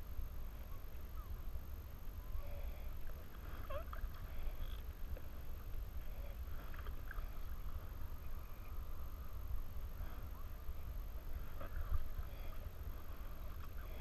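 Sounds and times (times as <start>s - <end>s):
faint water sounds: 0.0s - 14.0s
wind rumble on microphone: 0.0s - 14.0s.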